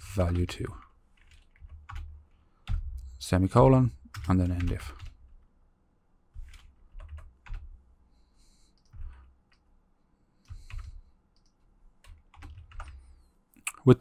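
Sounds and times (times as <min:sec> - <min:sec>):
keyboard keys clicking: 0:01.2 - 0:03.0, 0:06.4 - 0:07.7, 0:10.4 - 0:13.0.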